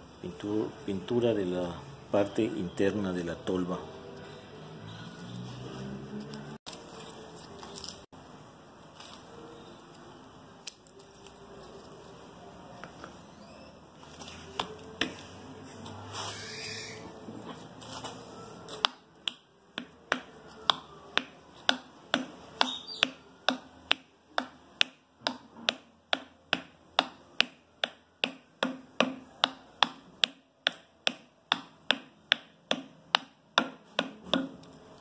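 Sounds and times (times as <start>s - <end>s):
hammer tapping on wood: 18.8s - 34.7s.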